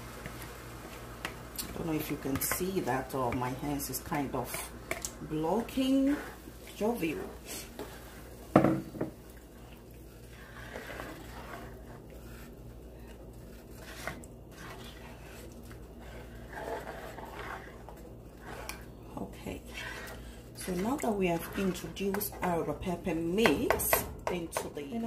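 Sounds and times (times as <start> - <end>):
spoon stirring and scraping pot: 0.2 - 25.0.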